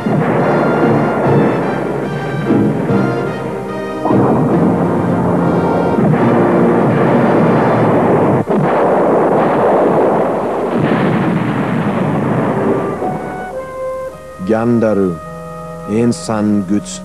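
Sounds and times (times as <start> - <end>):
music: 0.0 - 8.4, 12.4 - 17.0
cartoon explosion rumble: 4.0 - 16.0.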